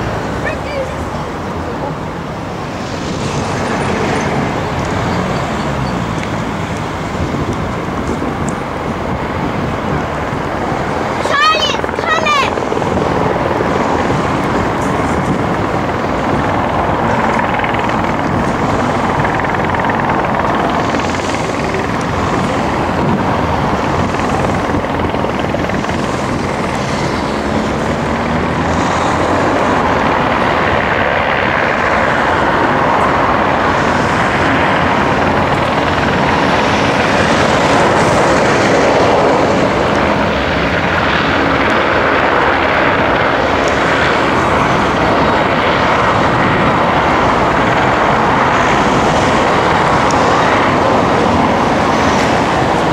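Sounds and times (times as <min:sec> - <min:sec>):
turboprop engines droning: 0:00.0 - 0:52.9.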